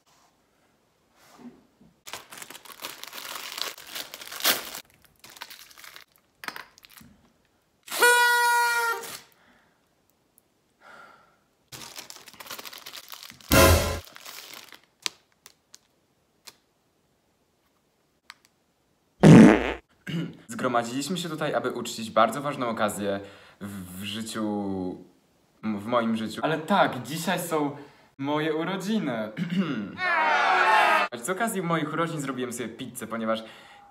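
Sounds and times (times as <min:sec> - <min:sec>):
foil crinkling: 0:02.1 - 0:07.1, 0:11.7 - 0:16.6
party blower tooting: 0:07.9 - 0:09.1, 0:13.5 - 0:14.0
short loud noise: 0:13.5 - 0:14.0.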